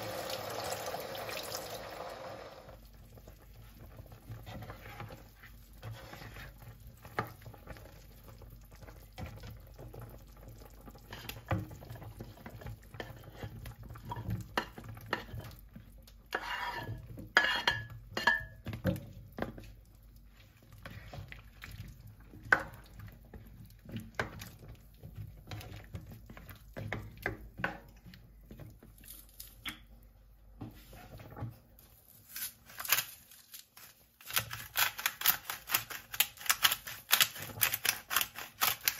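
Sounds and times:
broth simmering: 0.0s - 15.6s
spatula scraping frying pan: 4.0s - 7.8s, 11.0s - 15.6s, 16.3s - 18.6s.

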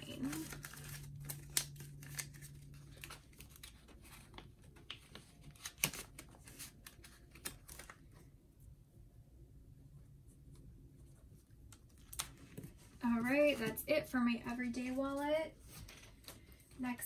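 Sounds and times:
paper bills rustling: 0.0s - 8.2s.

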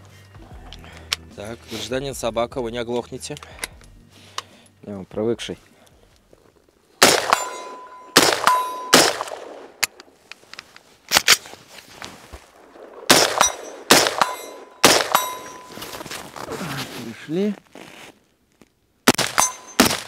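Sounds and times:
metallic ring of steel target: 7.0s - 9.3s, 13.2s - 16.0s, 19.2s - 20.0s
rifle shots: 7.0s - 10.0s, 12.6s - 15.8s, 19.1s - 20.0s.

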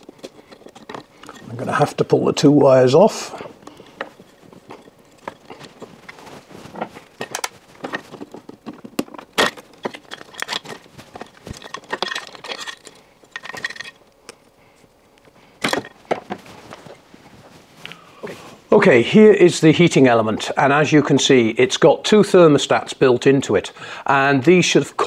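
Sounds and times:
light metallic rattles: 0.0s - 14.6s
clicks and knocks: 3.6s - 14.4s, 15.6s - 17.0s.

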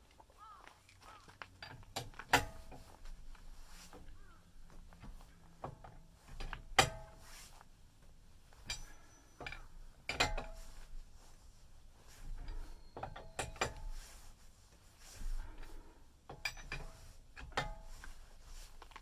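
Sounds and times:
lug wrench clinking on wheel nuts: 1.6s - 3.0s, 5.6s - 7.3s, 8.5s - 10.8s, 12.1s - 14.1s, 16.3s - 18.2s.

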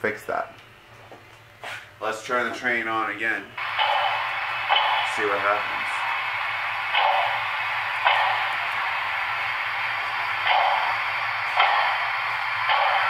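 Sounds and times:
chuff-like bursts: 3.6s - 13.0s
steam hiss: 3.6s - 13.0s.

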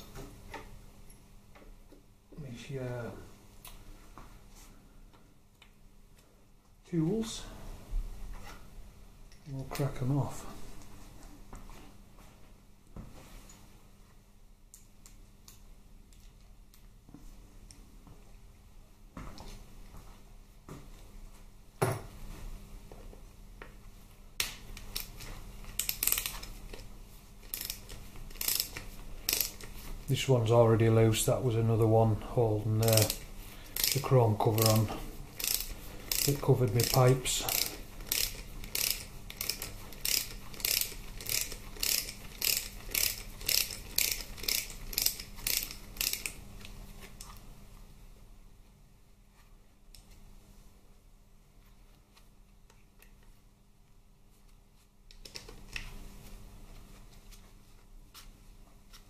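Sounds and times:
hand ratchet clicking: 24.8s - 25.2s, 25.8s - 26.6s, 27.4s - 29.7s, 32.8s - 46.4s.

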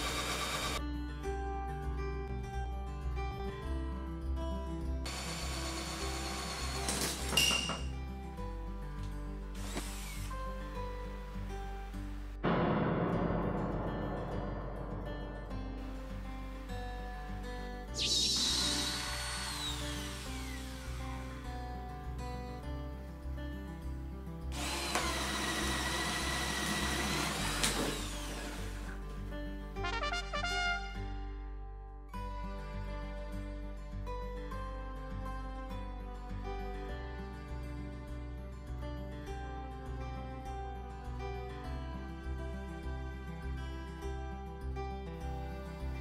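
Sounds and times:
cordless drill motor whining: 0.0s - 0.8s, 5.1s - 7.6s, 9.6s - 10.4s, 18.0s - 21.4s, 24.6s - 29.0s
background music: 0.0s - 46.0s
drill bit chewing wood: 18.0s - 21.3s, 24.6s - 28.8s.

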